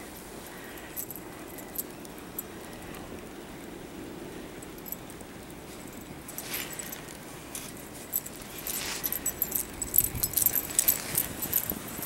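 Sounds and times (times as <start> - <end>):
dog collar jingling: 0.6 - 2.5, 4.6 - 12.0.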